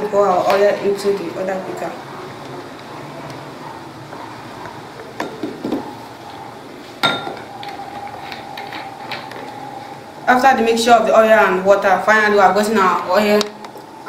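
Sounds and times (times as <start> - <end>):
glass clink: 7.0 - 7.5.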